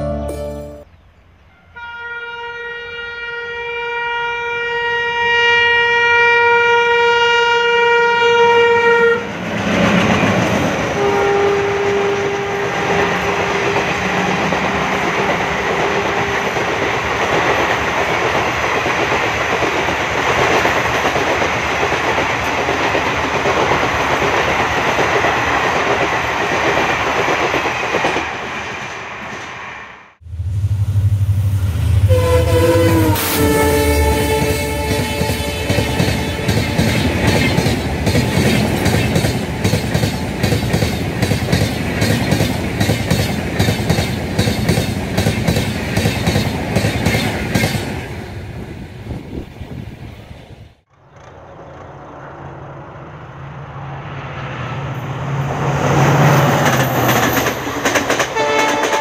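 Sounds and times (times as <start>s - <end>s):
train passing on rails: 0.4s - 59.0s
locomotive horn blast: 1.5s - 9.4s, 10.9s - 16.6s, 30.4s - 37.2s, 58.3s - 59.0s.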